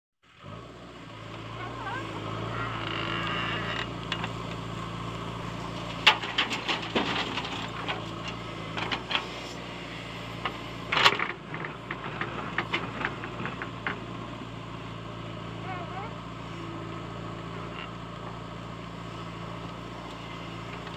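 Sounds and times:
diesel engine running: 0.3 - 20.9.

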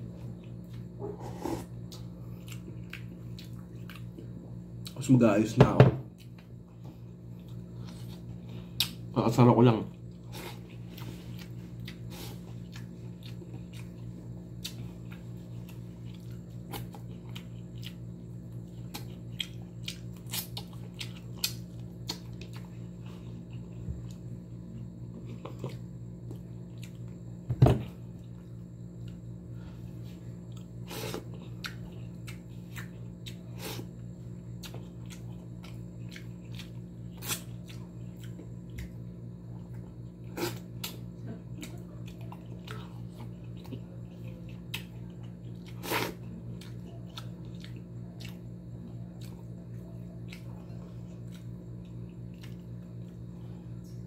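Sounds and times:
chewing and lip smacks: 1.8 - 5.0, 9.9 - 27.2, 30.4 - 33.5, 34.3 - 54.0.

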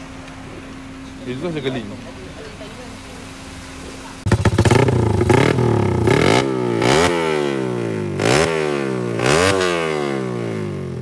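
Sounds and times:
small motorcycle engine revving: 4.2 - 11.0.

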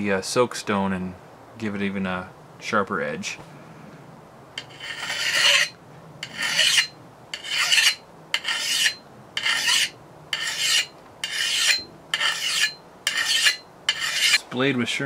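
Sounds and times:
file rasping on steel axe edge: 4.6 - 14.4.

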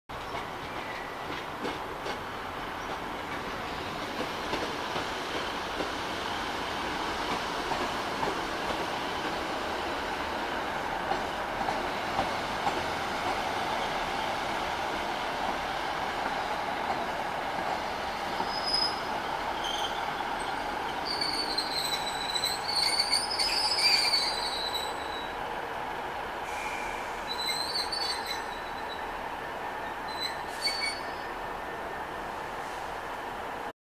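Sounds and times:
train rumbling into station: 0.1 - 33.7
train wheels squealing: 18.3 - 25.4, 26.4 - 29.1, 29.8 - 31.4.

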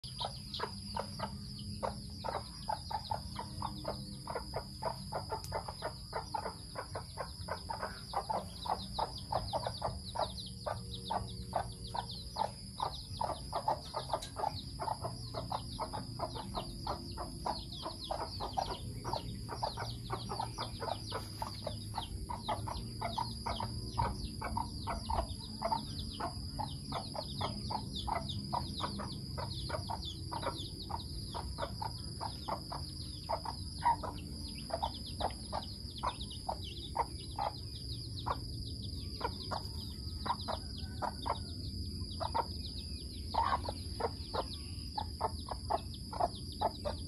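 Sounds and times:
chickens chirping and clucking: 0.0 - 47.0.

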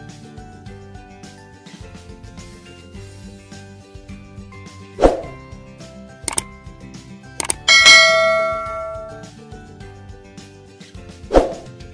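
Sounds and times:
quick double click: 7.4 - 9.2
sharp percussive hit: 7.4 - 9.2
music with held notes: 7.4 - 10.1.

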